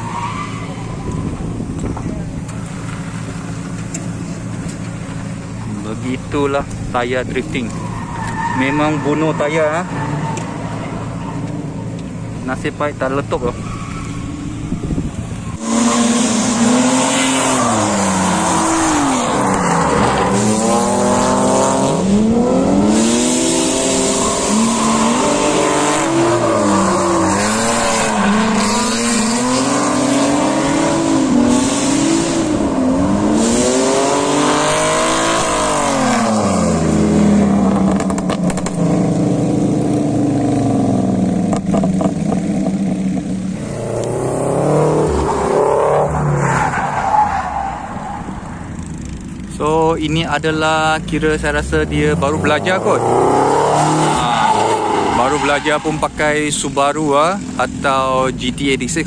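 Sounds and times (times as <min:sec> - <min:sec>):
car engine revving: 0:00.0 - 0:59.0
tyres screeching: 0:07.3 - 0:12.4, 0:13.2 - 0:32.2, 0:52.2 - 0:56.3.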